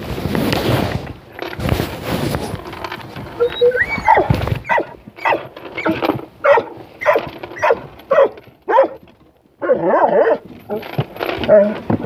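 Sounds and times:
puppy yapping: 3.4 - 9.0.

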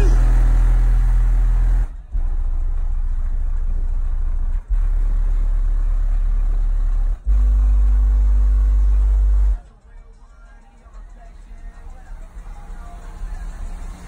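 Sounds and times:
deep subwoofer bass tones: 0.0 - 9.6.

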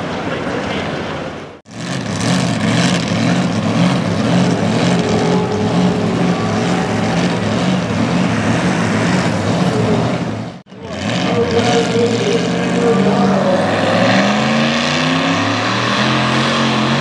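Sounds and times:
truck engine idling lumpily: 0.0 - 13.6
truck engine running hard: 0.0 - 17.0.

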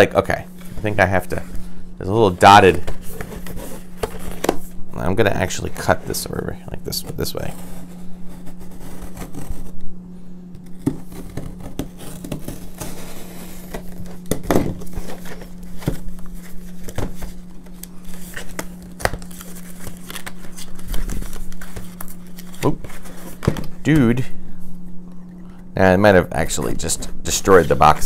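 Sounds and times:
low steady hum: 0.0 - 28.0
cardboard tearing and crinkling: 2.4 - 4.7, 6.9 - 9.8, 10.6 - 23.7.

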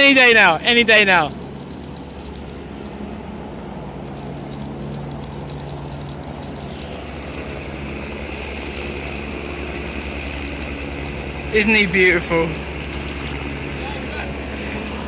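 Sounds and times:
helicopter drone: 0.0 - 15.0
zip-line pulley whining on cable: 4.0 - 15.0.

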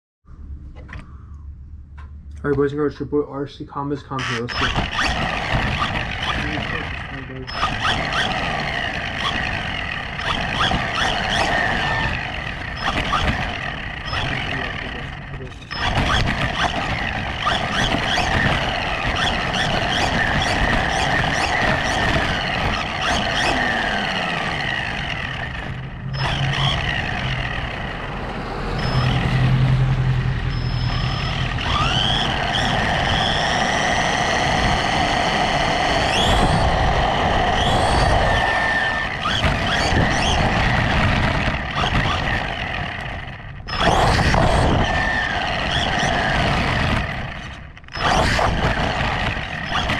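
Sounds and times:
electric motor whining: 4.2 - 49.9
tyre noise on asphalt: 4.5 - 49.9.

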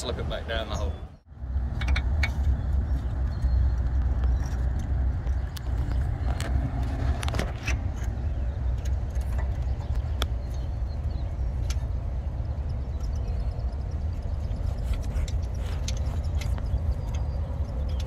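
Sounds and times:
steady low rumble: 0.0 - 18.0
clicks and taps of metal parts: 1.7 - 2.6.

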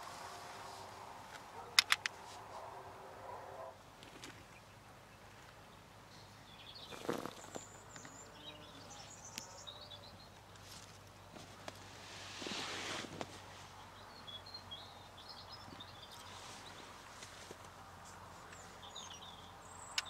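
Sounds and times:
sharp clicks: 1.8 - 2.2
small birds chirping: 4.0 - 11.8, 13.6 - 20.0.

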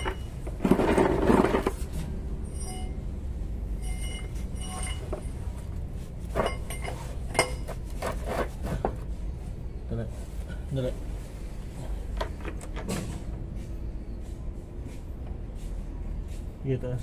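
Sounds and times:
metal tools clinking: 0.0 - 1.8, 2.4 - 3.2, 3.8 - 8.6.

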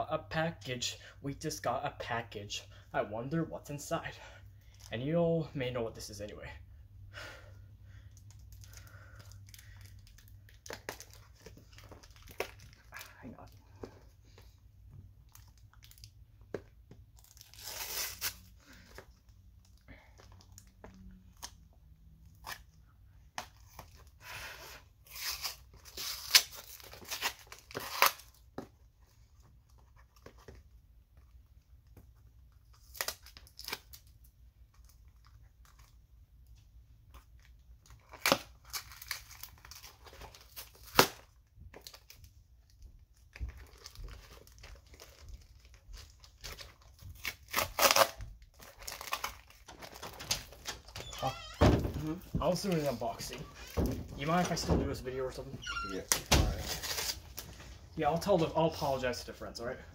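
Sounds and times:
packaging tearing and crinkling: 9.5 - 13.1, 17.2 - 18.9, 25.1 - 28.4, 32.7 - 34.1, 37.9 - 42.2, 43.4 - 54.5, 56.0 - 57.6.

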